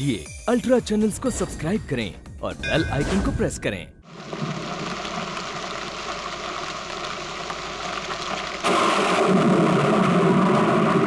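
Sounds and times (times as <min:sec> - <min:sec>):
heavy rain on street: 0:04.1 - 0:11.0.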